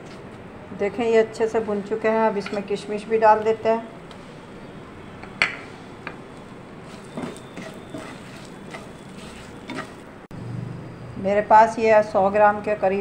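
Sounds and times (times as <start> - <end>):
spatula scraping frying pan: 6.8 - 10.1.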